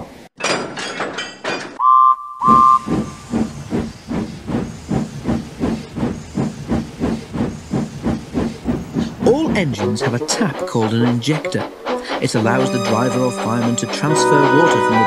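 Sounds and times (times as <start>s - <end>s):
steam whistle toot: 1.8s - 2.9s, 12.5s - 15.0s
steam locomotive chuffing: 2.4s - 15.0s.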